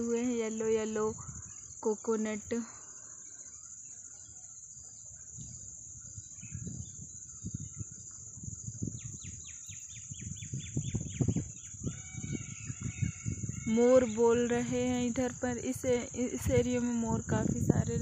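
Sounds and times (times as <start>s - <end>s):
crickets buzzing: 0.0s - 18.0s
peafowl calling: 11.5s - 14.5s.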